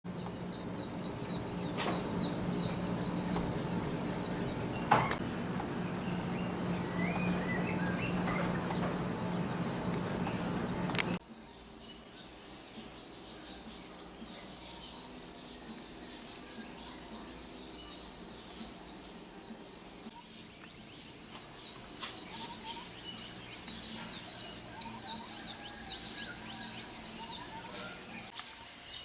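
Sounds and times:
low hum: 0.1s - 11.6s
birds chirping: 0.1s - 29.0s.

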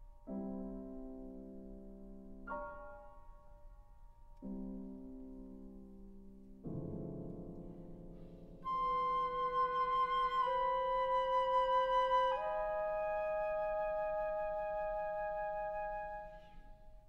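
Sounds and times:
piano chords: 0.0s - 17.0s
flute and clarinet held notes: 8.6s - 16.6s.

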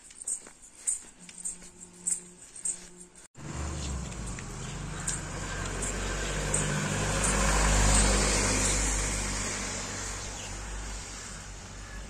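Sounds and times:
vehicle passing on wet road: 3.4s - 11.8s.

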